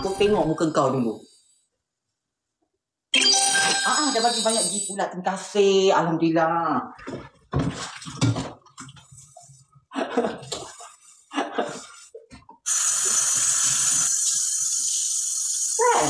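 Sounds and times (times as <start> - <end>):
kitchen tap running: 12.7 - 16.0.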